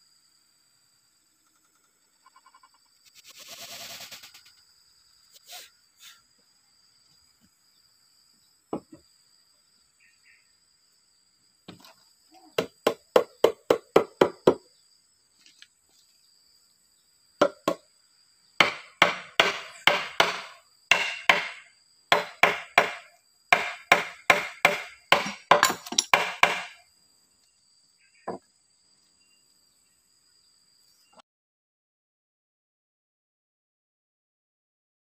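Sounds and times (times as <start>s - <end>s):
hammering on wood: 12.6s - 14.6s, 17.4s - 17.8s, 18.6s - 26.8s.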